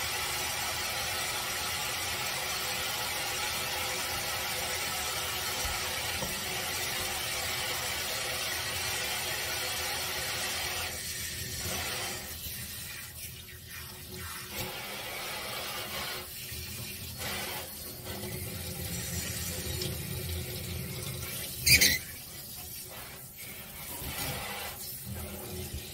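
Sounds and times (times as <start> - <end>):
tap water running into a metal sink: 0.0 - 25.9.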